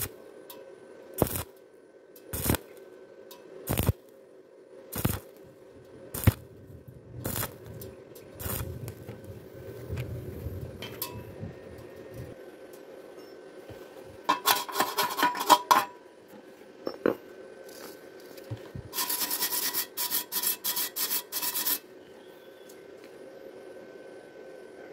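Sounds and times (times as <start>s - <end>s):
wire brush scraping metal tube: 14.3s - 15.9s, 18.9s - 21.9s.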